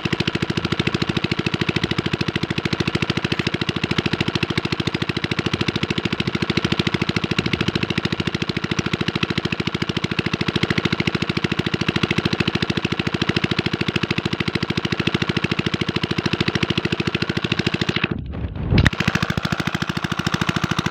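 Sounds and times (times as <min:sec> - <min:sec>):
low rumble: 0:18.1 - 0:18.9.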